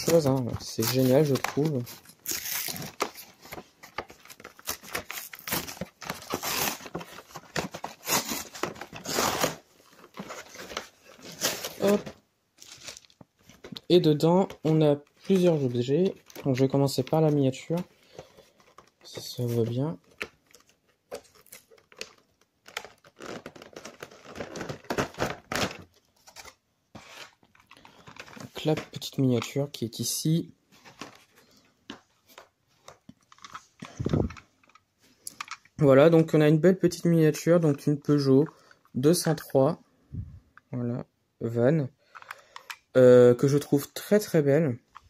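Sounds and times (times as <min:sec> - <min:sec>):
plastic packaging crinkling: 0:00.0 - 0:29.0.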